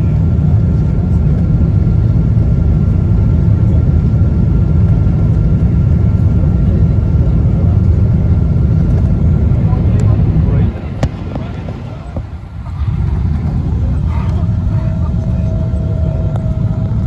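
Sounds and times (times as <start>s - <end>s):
aircraft cabin low rumble: 0.0s - 17.0s
faint high whine: 9.7s - 17.0s.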